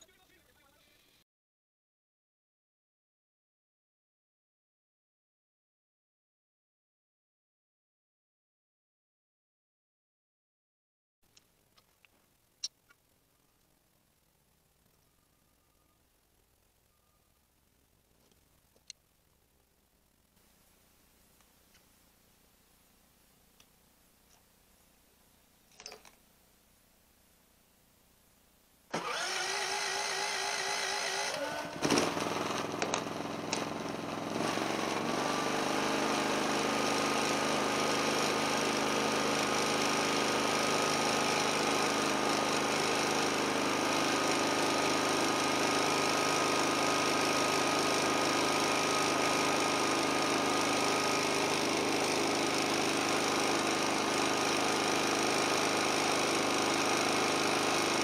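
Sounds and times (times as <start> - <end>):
electric starter cranking: 28.9 - 58.0
generator running: 28.9 - 58.0.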